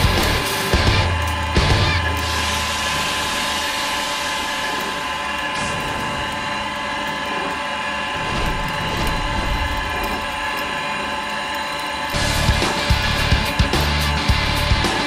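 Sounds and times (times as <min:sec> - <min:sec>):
music with a beat: 0:00.0 - 0:02.2, 0:12.2 - 0:15.0
pipe threading machine whine: 0:00.0 - 0:15.0.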